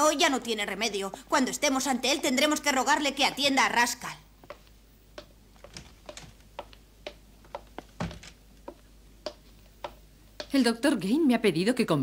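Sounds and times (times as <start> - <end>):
footsteps on hard floor: 4.4 - 10.6.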